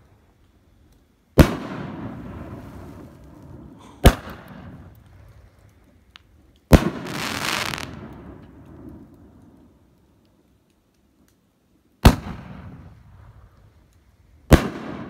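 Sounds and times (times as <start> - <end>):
firework hiss: 1.5 - 5.5, 6.7 - 8.1.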